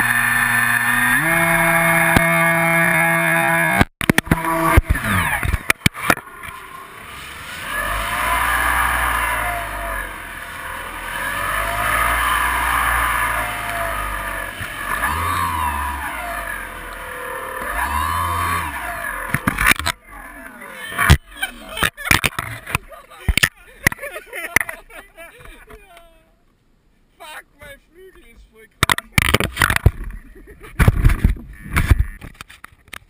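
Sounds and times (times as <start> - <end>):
electric motor and propeller whine: 0.0 - 21.5.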